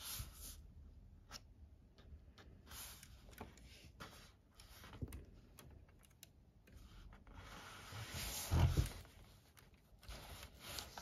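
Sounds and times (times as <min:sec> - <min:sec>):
soft rubbing on tabletop: 0:06.8 - 0:09.4.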